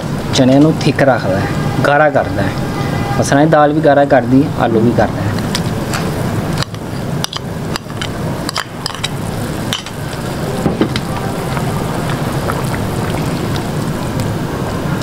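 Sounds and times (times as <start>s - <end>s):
broth bubbling in a pot: 5.3s - 15.0s.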